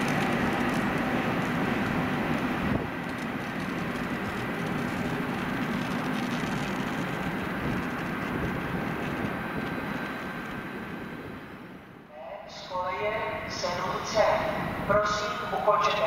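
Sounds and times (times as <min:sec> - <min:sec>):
train wheels rumbling on rail: 0:00.0 - 0:12.1.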